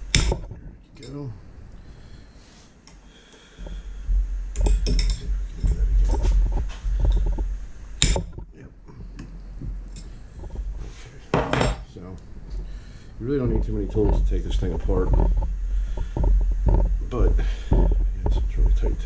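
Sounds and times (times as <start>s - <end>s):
metal tool clattering on workbench: 11.3s - 11.9s.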